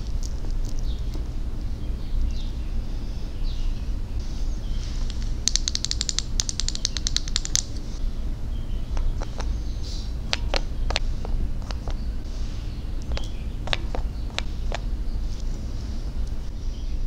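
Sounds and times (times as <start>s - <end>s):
steady low hum: 0.0s - 17.0s
fingers rubbing plastic face: 5.0s - 7.8s, 10.3s - 12.0s, 13.0s - 15.6s
clicks and taps: 5.1s - 7.7s, 10.3s - 12.0s, 13.0s - 14.8s
nails tapping on wooden bottle: 5.2s - 7.7s, 10.3s - 11.0s, 13.1s - 14.8s.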